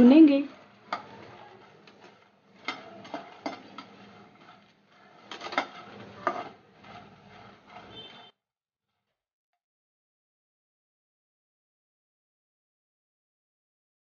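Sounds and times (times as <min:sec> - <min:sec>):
metal spatula scraping a pan: 0:00.0 - 0:08.3
rustle of puffed seeds: 0:00.7 - 0:08.2.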